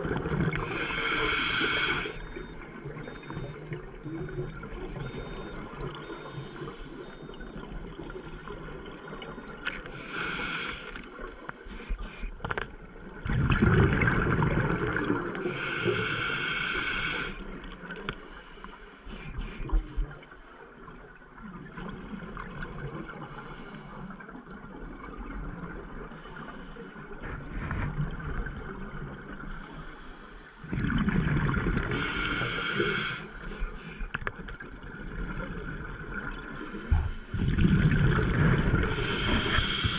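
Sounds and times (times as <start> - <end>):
regulator breathing hiss: 0.6 - 2.2, 9.9 - 12.3, 15.5 - 17.4, 31.9 - 34.1, 38.9 - 39.9
exhaled bubbles rushing: 13.2 - 15.4, 30.7 - 31.9, 37.3 - 39.0.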